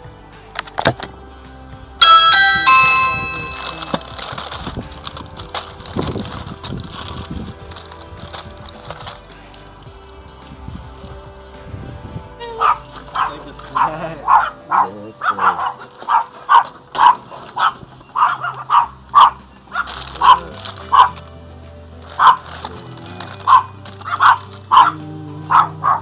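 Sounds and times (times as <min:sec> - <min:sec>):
background music: 0:00.0 - 0:26.0
dog barking: 0:12.5 - 0:21.2, 0:23.5 - 0:26.0.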